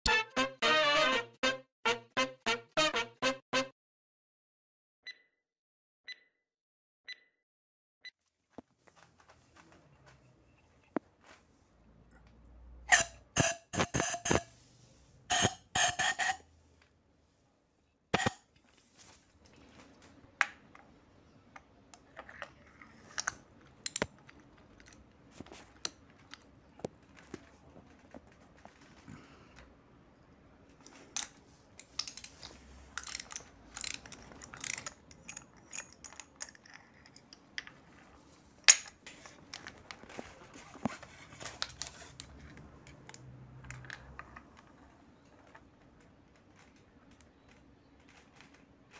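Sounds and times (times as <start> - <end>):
metal tools clinking: 30.8 - 37.4.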